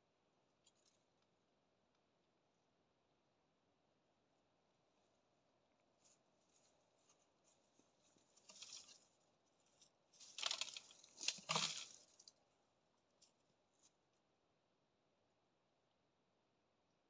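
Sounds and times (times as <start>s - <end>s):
tearing and crackling: 10.2s - 12.3s.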